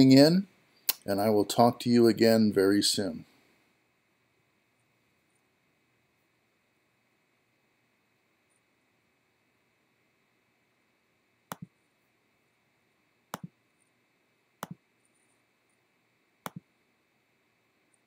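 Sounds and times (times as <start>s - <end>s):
faint steady hiss: 0.0s - 18.0s
mouse button clicks: 11.5s - 11.7s, 13.3s - 13.5s, 14.6s - 14.8s, 16.4s - 16.6s.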